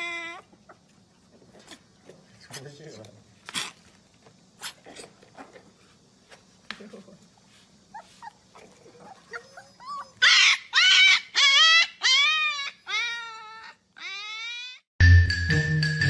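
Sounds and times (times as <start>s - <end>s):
puppy howling: 0.0s - 0.5s, 8.6s - 14.9s
puppy squeaking: 9.0s - 14.8s.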